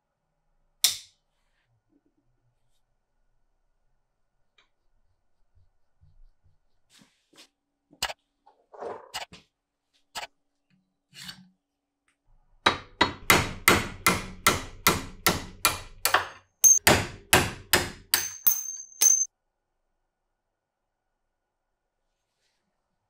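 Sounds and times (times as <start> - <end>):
hammer blows on steel: 16.6 - 19.3.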